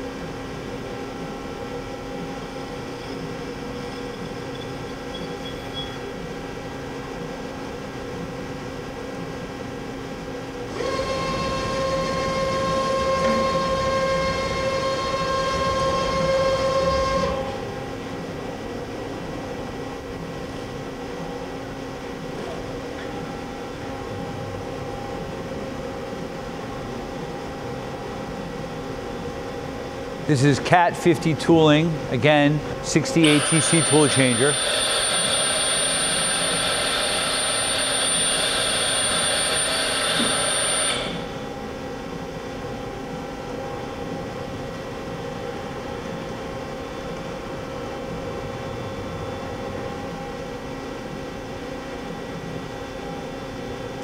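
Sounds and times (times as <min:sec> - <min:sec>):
boring mill mechanical hum: 0:00.0 - 0:54.0
machine tool humming: 0:10.7 - 0:17.8, 0:31.2 - 0:41.7
faint high whine: 0:33.1 - 0:41.3.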